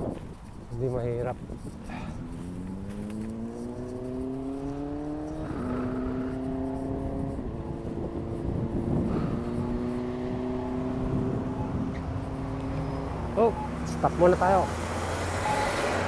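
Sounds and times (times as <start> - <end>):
road and wind noise: 0.0 - 16.0
motor speeding up: 2.1 - 12.8.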